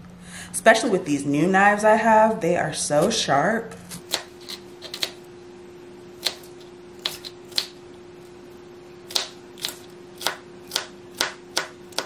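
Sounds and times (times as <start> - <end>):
faint steady hum: 0.0 - 12.0
knife chopping on plastic board: 4.0 - 5.2, 6.2 - 7.8, 9.1 - 12.0.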